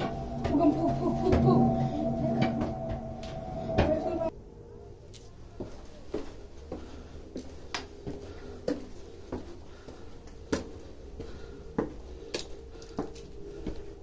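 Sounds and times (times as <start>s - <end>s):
footsteps on stone steps: 0.0s - 1.7s, 5.2s - 14.0s
low steady rumble: 0.0s - 4.8s.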